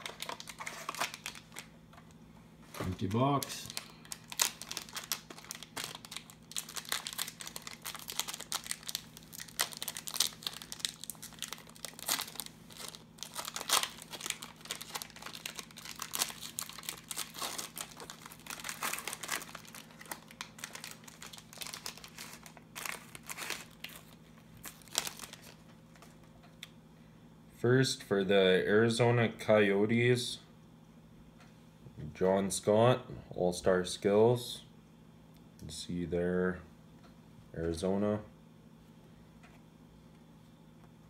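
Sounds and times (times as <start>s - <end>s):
foil wrapper crinkling and tearing: 0.0s - 1.7s, 2.9s - 26.2s.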